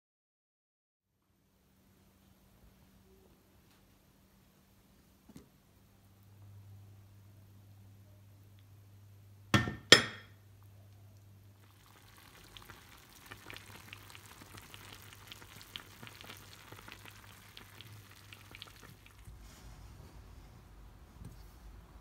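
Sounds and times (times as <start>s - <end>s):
vegetables sizzling and bubbling: 11.0s - 19.6s.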